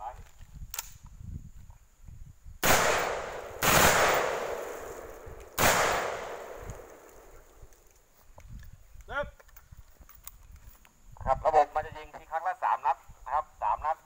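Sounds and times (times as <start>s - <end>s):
rifle shots echoing: 2.6s - 7.7s.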